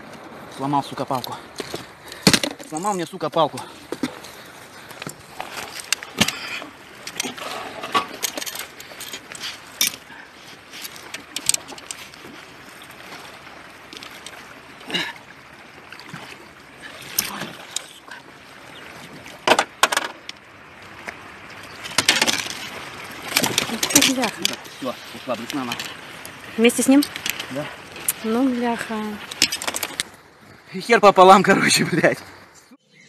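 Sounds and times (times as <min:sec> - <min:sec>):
water lapping against boat: 0:00.0 - 0:30.6
knocks and clicks of fishing line: 0:01.2 - 0:04.2, 0:04.9 - 0:10.1, 0:10.7 - 0:12.4, 0:17.0 - 0:17.9, 0:19.2 - 0:20.4, 0:21.8 - 0:24.7, 0:27.0 - 0:28.2, 0:29.2 - 0:30.2.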